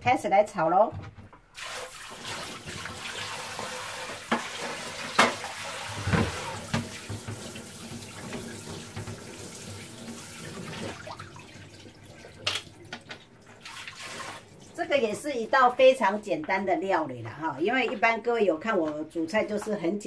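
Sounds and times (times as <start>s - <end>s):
tap water running into sink: 1.6s - 14.8s.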